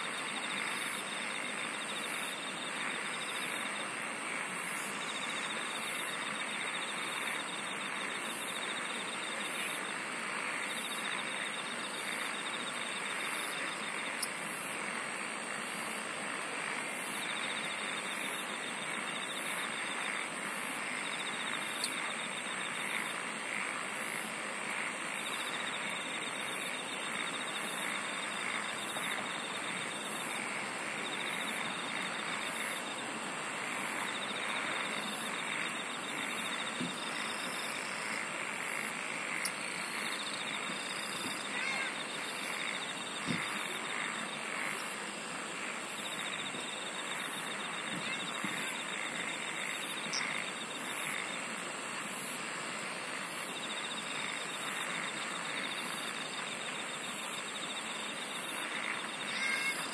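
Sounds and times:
low buzzing insect trill: 0.0 - 16.1, 16.8 - 52.4, 53.1 - 59.9
high pulsed insect chirp: 0.1 - 14.8, 23.8 - 52.4, 53.2 - 59.9
high-pitched insect trill: 25.0 - 30.4, 31.0 - 33.0, 38.6 - 45.0, 45.8 - 51.4, 53.2 - 59.9.

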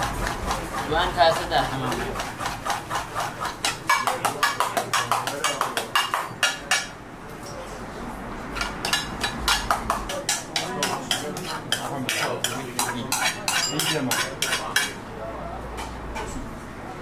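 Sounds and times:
metal ladle clinking in steel bowl: 10.8 - 14.9.

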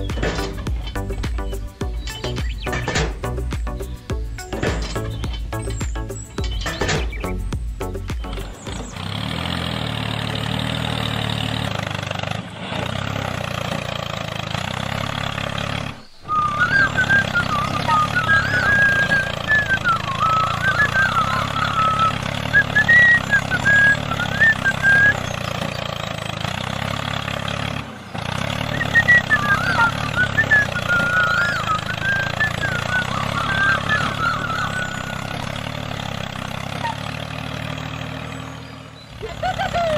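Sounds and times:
low diesel engine running: 0.0 - 39.9
wavering high chirps: 1.0 - 7.4, 16.1 - 25.8, 28.7 - 37.0.

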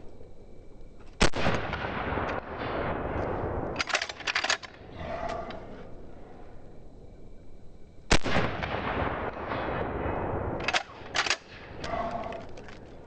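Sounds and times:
shotgun shot echoing: 1.2 - 4.4, 8.1 - 12.4
shotgun slide metallic clacks: 3.8 - 4.7.

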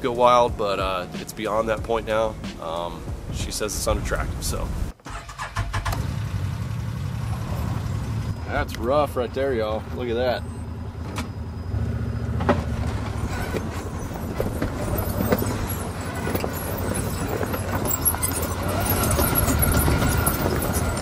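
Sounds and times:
off-road vehicle engine running: 4.5 - 21.0
tyres knocking over stones: 12.9 - 21.0.

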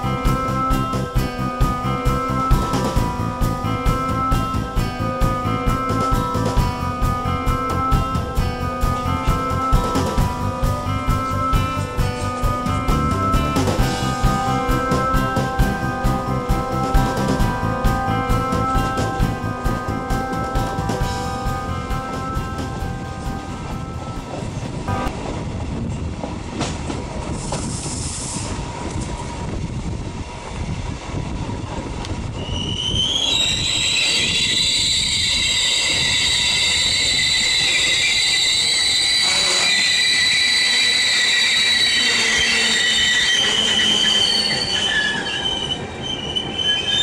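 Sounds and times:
train rolling rumble: 0.0 - 47.0
train wheels squealing: 32.2 - 47.0.

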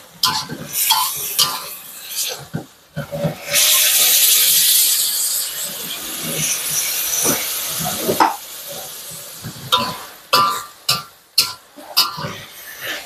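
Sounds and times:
food sizzling in a wok: 0.0 - 13.0
metal spatula knocking on wok: 9.8 - 12.3.

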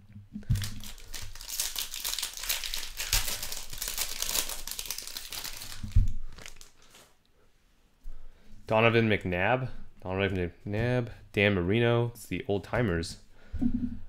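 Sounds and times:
foil wrapper crinkling: 0.4 - 7.1.

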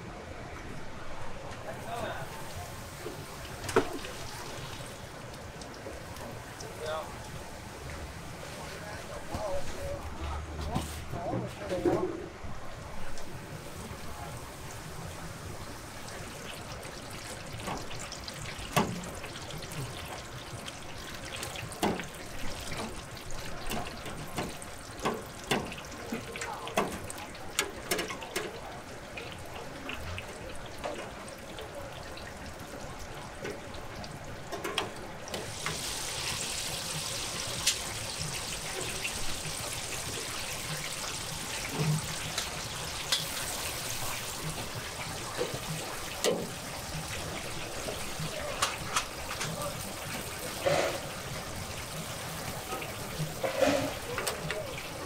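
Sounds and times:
fish sizzling in hot oil: 13.2 - 28.5, 34.4 - 55.0.

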